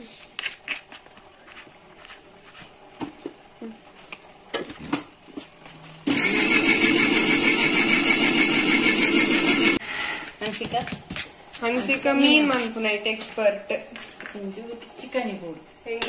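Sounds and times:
loud fluttering mechanical noise: 0:06.0 - 0:09.8.

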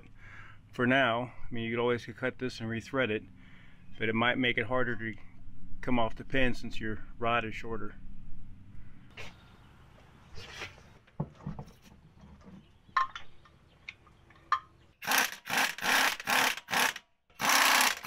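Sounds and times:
air impact wrench bursts: 0:15.0 - 0:18.0.

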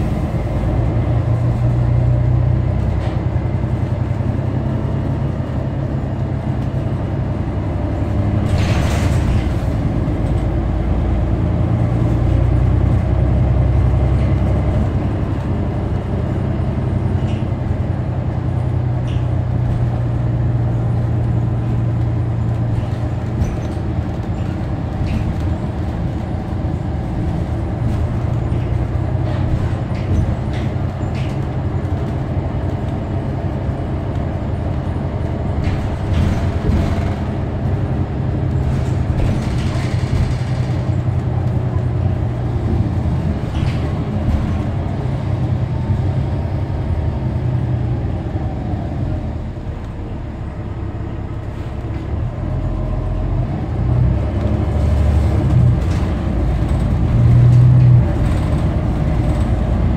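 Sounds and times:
bus engine drone: 0:00.0 - 0:59.9
rattles and clicks: 0:08.4 - 0:10.6, 0:17.1 - 0:45.5, 0:54.2 - 0:59.9.

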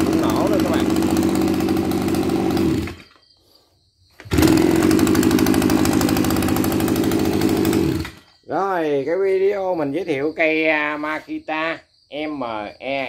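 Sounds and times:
engine running down: 0:00.0 - 0:03.0, 0:04.2 - 0:08.3
small petrol engine idling: 0:00.0 - 0:03.0, 0:04.2 - 0:08.3
engine starting: 0:00.0 - 0:03.2, 0:04.2 - 0:08.4.

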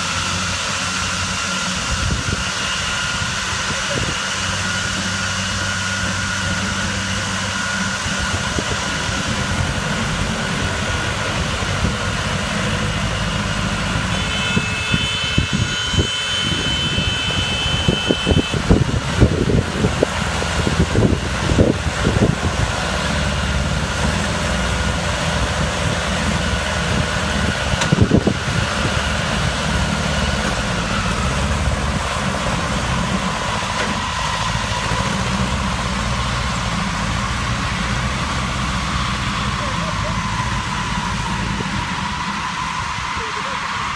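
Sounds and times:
tractor engine running: 0:00.0 - 0:43.9.

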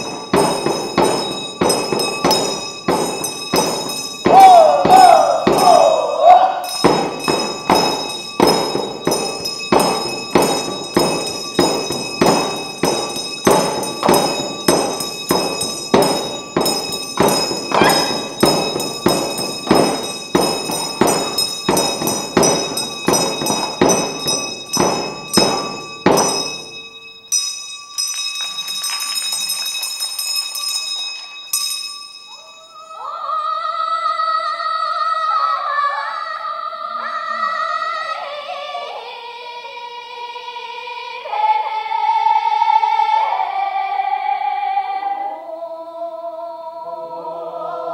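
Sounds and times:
hand drums beating: 0:00.0 - 0:06.0, 0:06.7 - 0:26.8
metallic ringing: 0:00.0 - 0:33.5
person singing: 0:04.3 - 0:06.8, 0:17.7 - 0:18.4.

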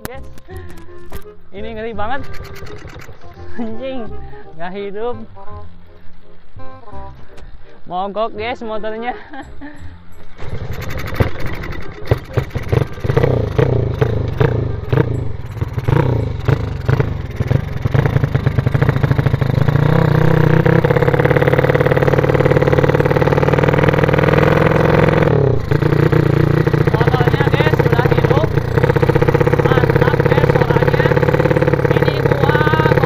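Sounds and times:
motorbike engine starting: 0:02.0 - 0:03.8, 0:10.3 - 0:33.0.

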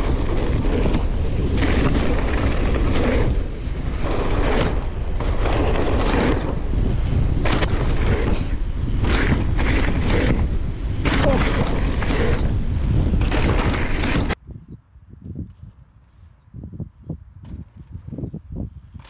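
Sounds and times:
bike knocking and rattling: 0:00.0 - 0:14.4
bike tyre noise: 0:00.0 - 0:19.0
wind buffeting microphone: 0:00.0 - 0:19.0.

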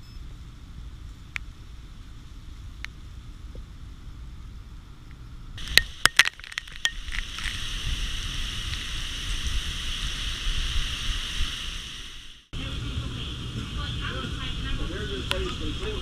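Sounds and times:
gusting wind: 0:00.4 - 0:16.0
sharp cracks: 0:05.6 - 0:07.6
heavy rain hissing: 0:05.6 - 0:16.0
wind rumble on microphone: 0:06.6 - 0:12.2.

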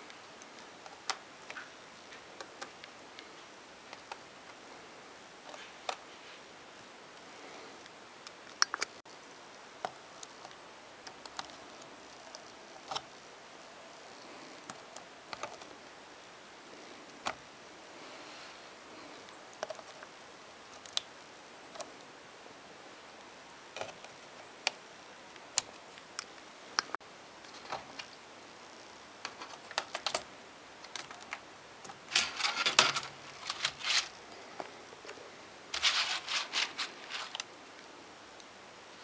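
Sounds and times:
faint steady hiss: 0:00.0 - 0:39.0.

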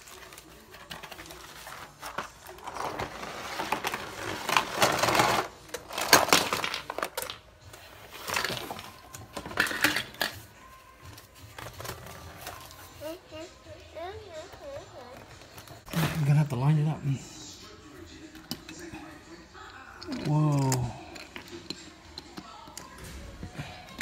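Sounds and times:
plastic toys clattering: 0:00.0 - 0:10.6, 0:20.0 - 0:24.0.

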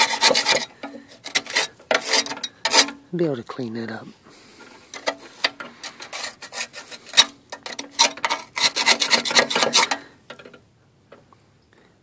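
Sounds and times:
hand rubbing and scraping: 0:00.0 - 0:03.0, 0:04.1 - 0:10.6.

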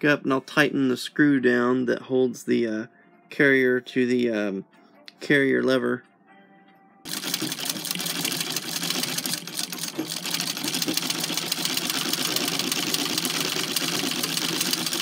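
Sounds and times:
sewing machine ticking: 0:07.1 - 0:15.0.

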